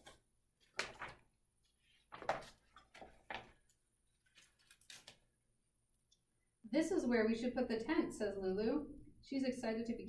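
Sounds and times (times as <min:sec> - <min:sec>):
paper pages rustling: 0:00.0 - 0:05.3.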